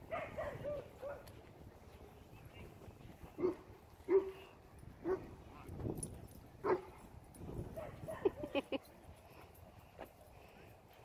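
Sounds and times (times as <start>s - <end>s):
dog barking and yipping: 0.0s - 1.3s, 3.4s - 5.3s, 6.6s - 7.0s, 7.7s - 8.6s.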